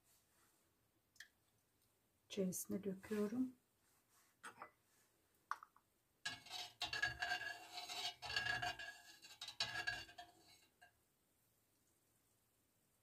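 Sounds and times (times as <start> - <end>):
metal spoon scraping steel pan: 6.3 - 10.9.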